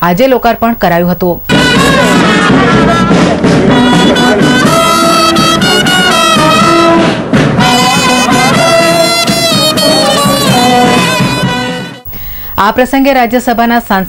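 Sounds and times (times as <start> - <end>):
marching brass band playing: 1.5 - 12.1.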